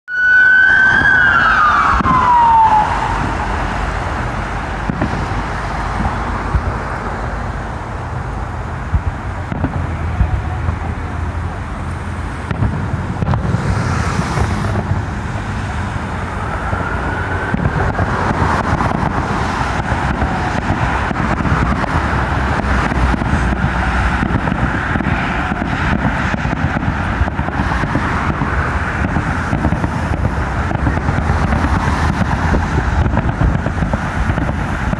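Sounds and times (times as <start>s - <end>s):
road traffic rumble: 0.1s - 34.9s
distant fireworks pops: 4.2s - 6.8s, 8.8s - 11.6s, 12.4s - 15.0s, 16.4s - 34.9s.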